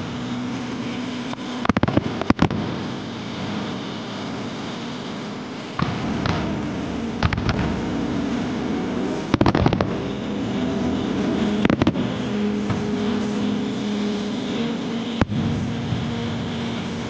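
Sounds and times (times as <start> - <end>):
firework shells bursting: 11.6 - 12.1.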